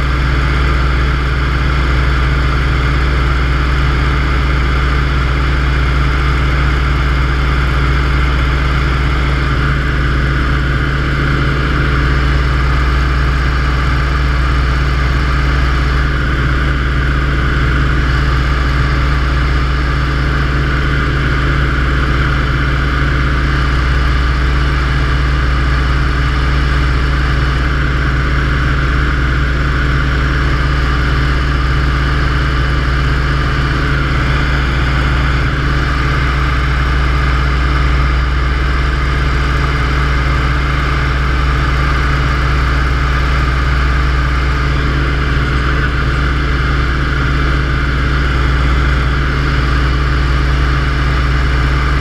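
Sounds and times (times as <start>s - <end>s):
propeller aircraft engine droning: 0.0s - 52.0s.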